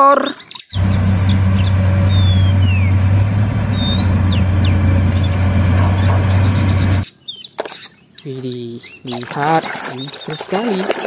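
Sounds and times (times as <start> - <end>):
birds chirping: 0.0 - 11.0
excavator diesel engine running: 0.8 - 7.0.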